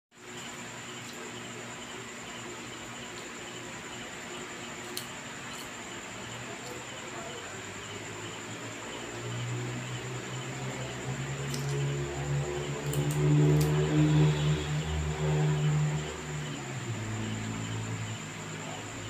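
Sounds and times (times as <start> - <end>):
high-pitched whine: 0.1 - 19.0
low hum: 9.4 - 19.0.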